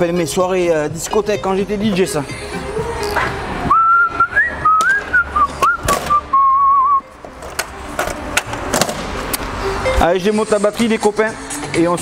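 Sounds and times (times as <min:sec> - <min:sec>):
whistled tune: 0:03.7 - 0:07.1.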